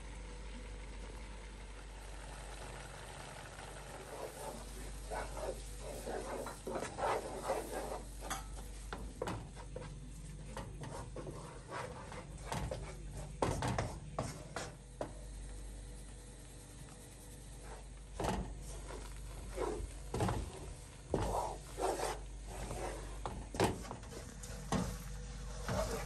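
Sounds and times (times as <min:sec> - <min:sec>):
wooden spoon scraping a pan: 0:04.1 - 0:14.8, 0:17.6 - 0:26.0.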